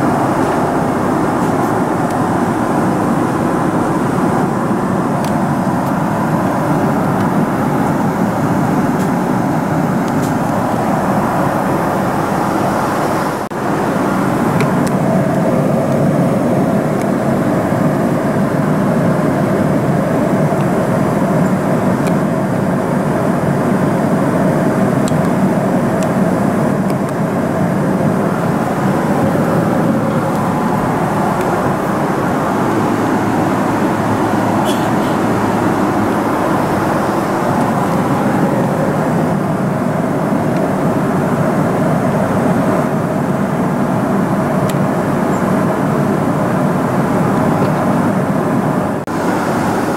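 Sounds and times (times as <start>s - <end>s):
airliner cabin hum: 0.0s - 49.9s.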